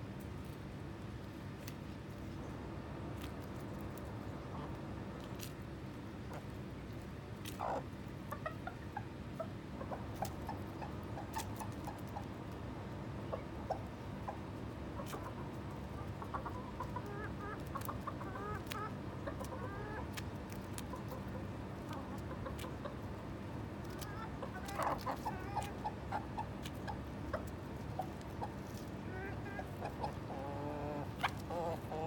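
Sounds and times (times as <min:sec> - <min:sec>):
chickens clucking: 0:01.3 - 0:32.0
hen pecking clicks: 0:09.9 - 0:12.7, 0:13.3 - 0:23.2, 0:23.8 - 0:32.0.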